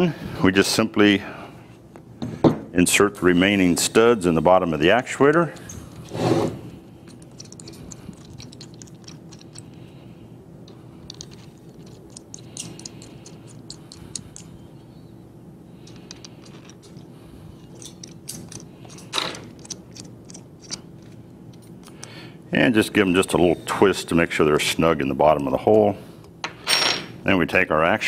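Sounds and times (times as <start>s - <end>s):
small metallic clicks: 7.1s - 9.9s, 10.7s - 14.6s, 15.8s - 22.2s.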